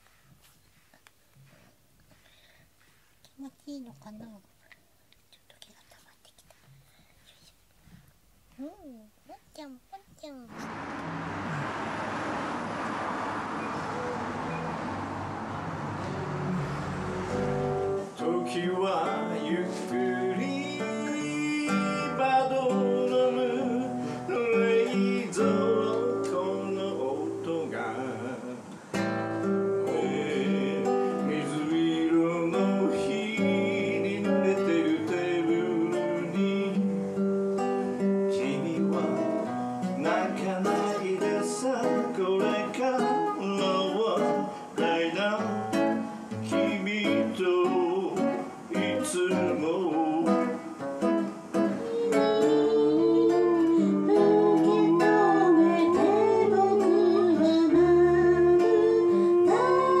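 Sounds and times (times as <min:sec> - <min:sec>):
nylon-string acoustic guitar: 0:05.6 - 1:00.0
man singing: 0:18.1 - 0:28.7, 0:29.8 - 0:37.1, 0:38.2 - 0:50.8, 0:51.5 - 1:00.0.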